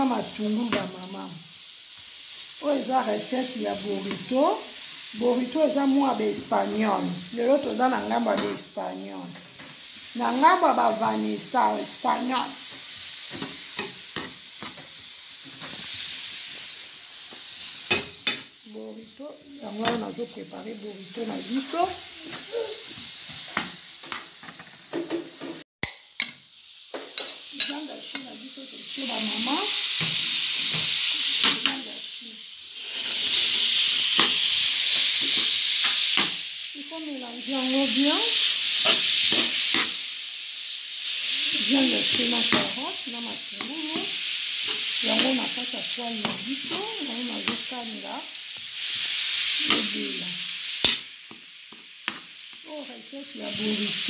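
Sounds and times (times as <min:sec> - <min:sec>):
food sizzling in frying pan: 0:00.0 - 0:54.0
metal spoon scraping pan: 0:38.8 - 0:40.0.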